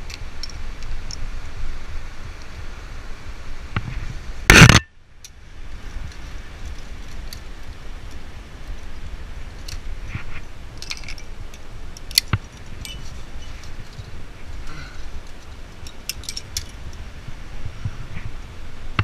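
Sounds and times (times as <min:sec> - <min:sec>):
steady low rumble: 0:00.0 - 0:19.0
climbing hardware clinking: 0:10.7 - 0:17.0.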